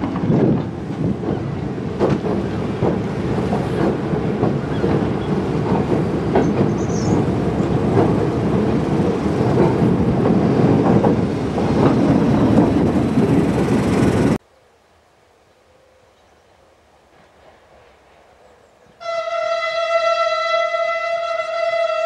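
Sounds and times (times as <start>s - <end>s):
diesel locomotive engine: 0.0s - 14.4s
train wheels clattering over rails: 0.0s - 14.4s
sharp clicks and knocks: 2.0s - 12.9s.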